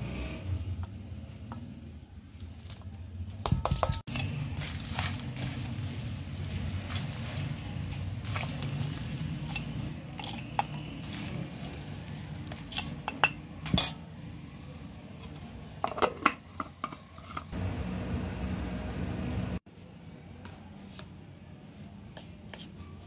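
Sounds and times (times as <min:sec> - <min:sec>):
metal spoon clinking on steel bowl: 0:03.4 - 0:05.7
steady low hum: 0:17.6 - 0:19.6.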